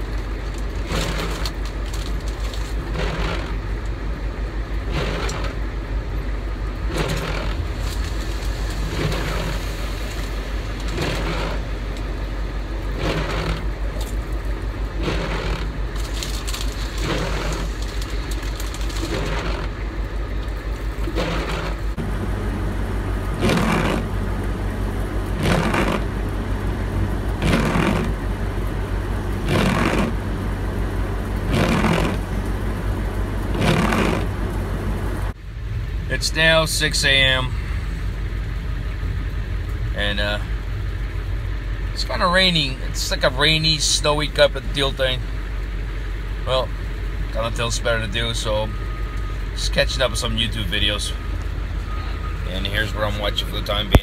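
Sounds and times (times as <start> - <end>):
windshield wipers sweeping: 0.0 - 35.4
deep hum: 0.0 - 43.5
vehicle engine idling: 0.0 - 54.0.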